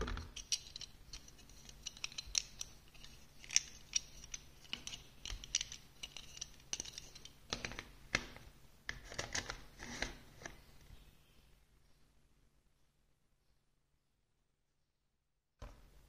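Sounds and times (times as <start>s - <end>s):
plastic pieces clicking and scraping: 0.0s - 8.3s.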